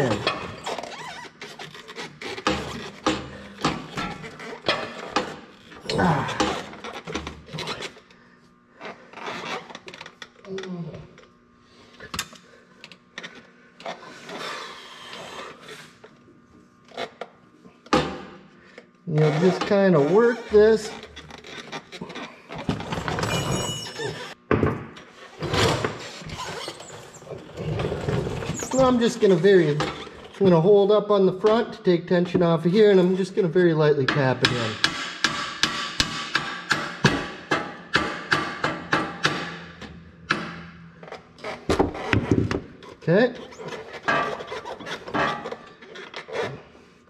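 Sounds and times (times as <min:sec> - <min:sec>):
metal scraping and squeaking: 0:19.1 - 0:22.4, 0:25.5 - 0:30.8.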